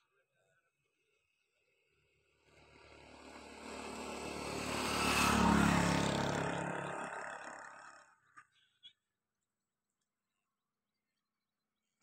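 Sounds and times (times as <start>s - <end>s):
vehicle passing by: 2.3s - 8.1s.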